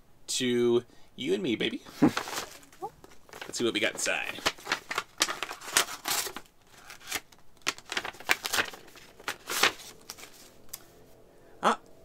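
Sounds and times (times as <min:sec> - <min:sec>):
paper tearing and crinkling: 0:01.9 - 0:10.8.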